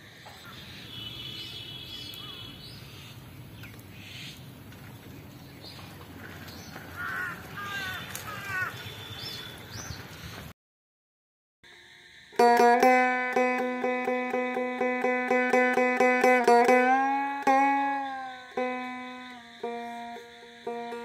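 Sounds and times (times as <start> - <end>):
faint outdoor background hum: 0.0 - 10.4, 11.7 - 21.0
birds chirping and calling: 0.3 - 10.4.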